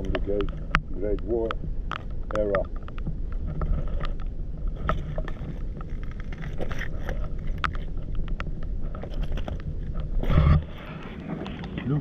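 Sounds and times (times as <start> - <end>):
wind rumble on microphone: 0.0 - 12.0
footsteps on stones and shards: 2.0 - 11.9.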